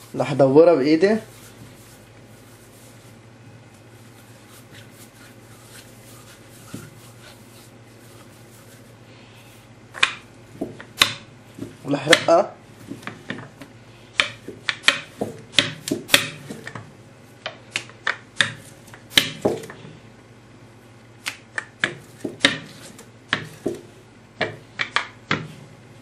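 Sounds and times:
rolling pin clicking on countertop: 21.3 - 23.8.

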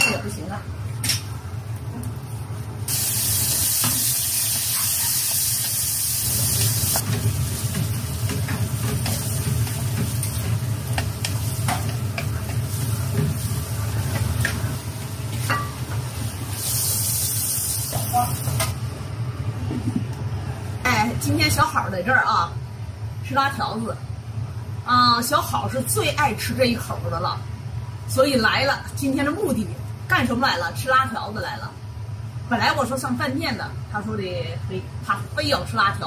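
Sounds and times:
food sizzling in a wok: 2.8 - 18.7.

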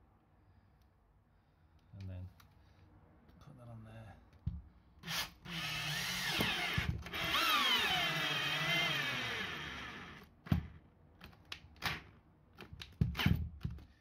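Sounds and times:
cordless drill motor bogging down: 5.5 - 10.2.

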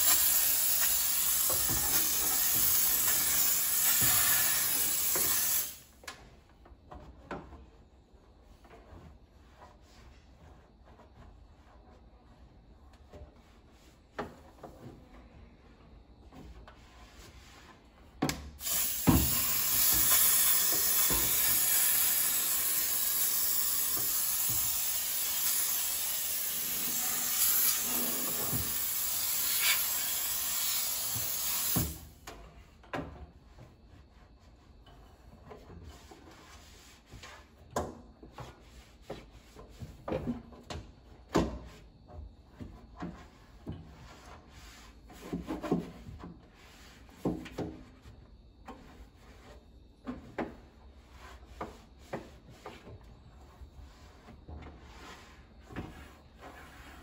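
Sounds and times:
steam cleaner hissing: 0.0 - 5.9, 18.6 - 32.1.

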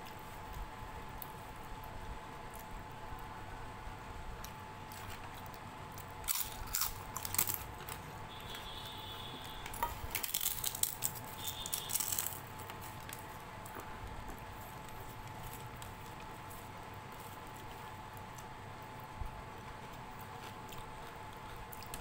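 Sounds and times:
crisp papad crackling: 10.1 - 18.5.

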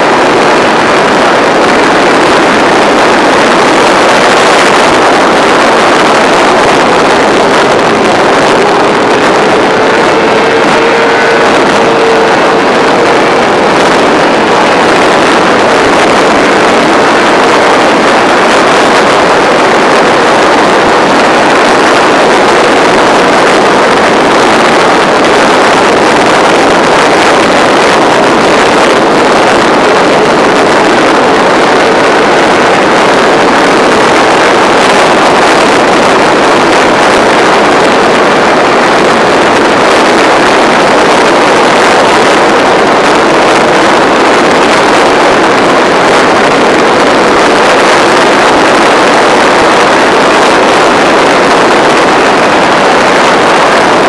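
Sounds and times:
wind rush on microphone: 0.0 - 54.0
racing motorcycle engine at high revs: 0.3 - 25.0.

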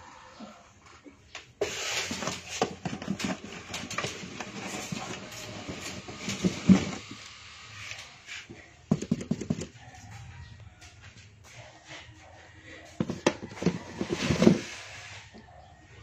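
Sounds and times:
kitten scratching cardboard box: 1.6 - 7.1, 7.9 - 10.3, 12.9 - 15.5
knocks on cardboard: 8.9 - 9.7.

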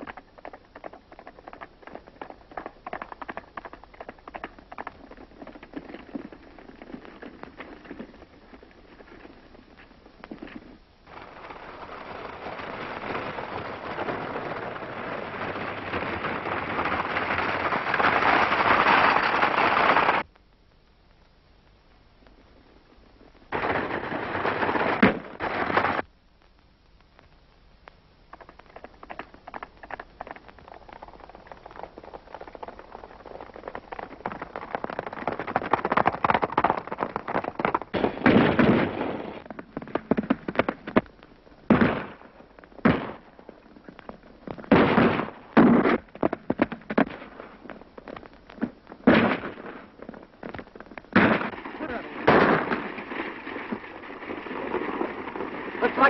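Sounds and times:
galloping horses hooves: 0.0 - 20.3, 22.2 - 26.2, 27.2 - 56.0
loud gunshot: 41.7 - 42.2, 42.9 - 43.2, 44.7 - 46.0, 49.1 - 49.8, 51.2 - 52.8.

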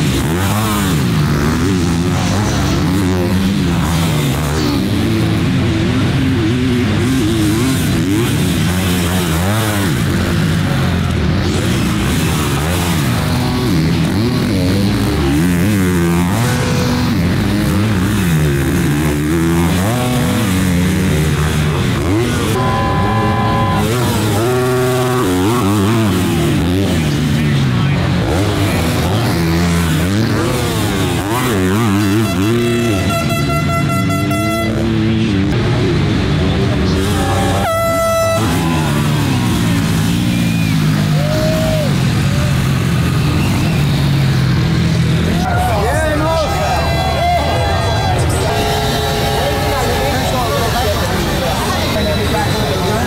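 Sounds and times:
motocross bike engines revving: 0.0 - 53.0
air horn: 22.5 - 23.9, 31.8 - 35.0, 37.0 - 38.8.

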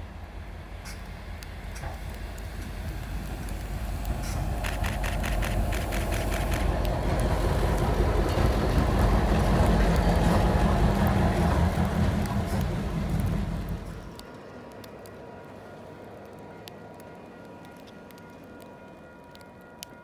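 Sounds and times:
diesel locomotive engine rumbling: 0.0 - 19.8
quick run of clicks: 4.2 - 7.0.

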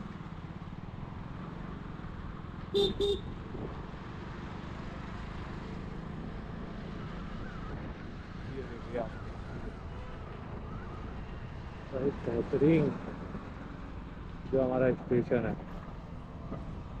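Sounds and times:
vehicle engine and road noise: 0.0 - 17.0
car horn beeps: 2.8 - 3.4.

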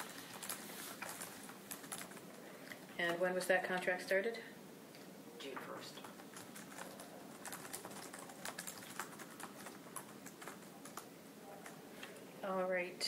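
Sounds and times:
typing on computer keyboard: 0.0 - 2.3, 6.0 - 11.8.

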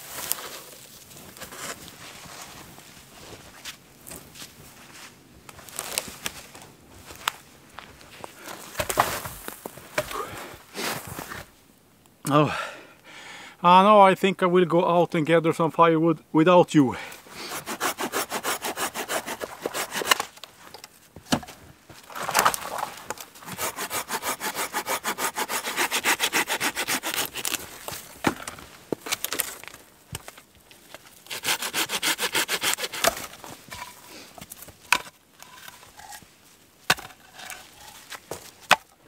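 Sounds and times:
hand saw cutting branch: 17.4 - 20.4, 23.4 - 27.9, 31.2 - 34.2.

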